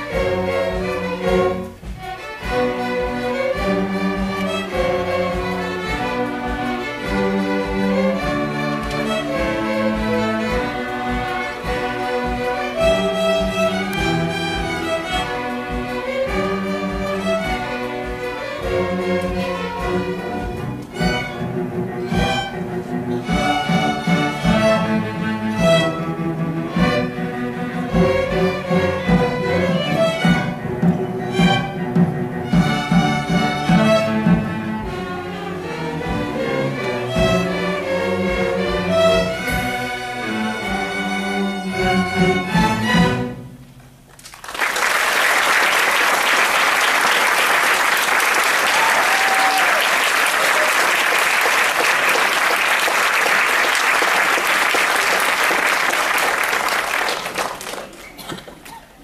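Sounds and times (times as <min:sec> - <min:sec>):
string orchestra playing: 0:00.0 - 0:58.0
audience applauding: 0:44.1 - 0:58.7.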